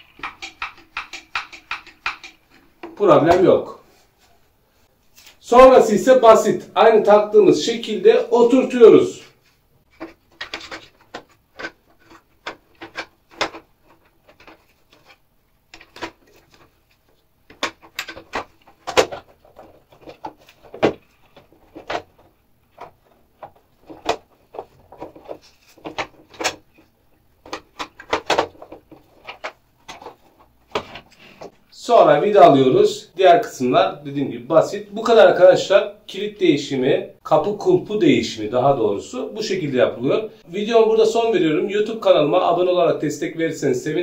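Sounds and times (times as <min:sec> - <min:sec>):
plastic parts clicking and rubbing: 0:00.0 - 0:03.0, 0:09.4 - 0:31.6.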